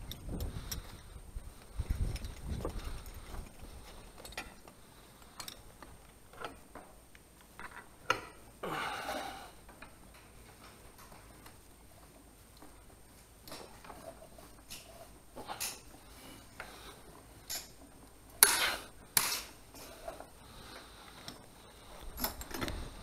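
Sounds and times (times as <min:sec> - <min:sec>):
metal carabiners clinking: 0:01.8 - 0:04.6, 0:17.4 - 0:17.9, 0:22.0 - 0:23.0.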